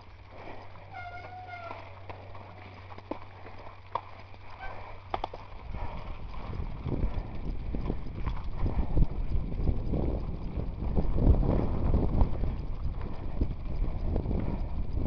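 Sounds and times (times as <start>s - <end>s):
low rumble: 0.0s - 15.0s
mountain bike rattling and knocking: 0.0s - 15.0s.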